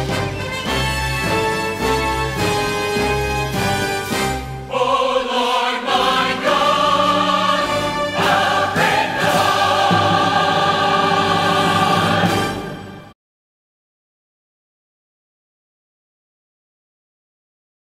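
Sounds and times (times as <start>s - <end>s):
choir and orchestra chords: 0.0s - 13.2s.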